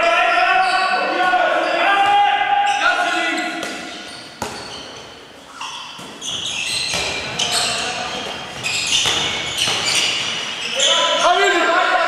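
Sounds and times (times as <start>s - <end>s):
players calling: 0.0s - 12.0s
shoe squeaks: 2.7s - 11.8s
handball thudding on floor: 3.6s - 4.7s, 8.6s - 9.9s.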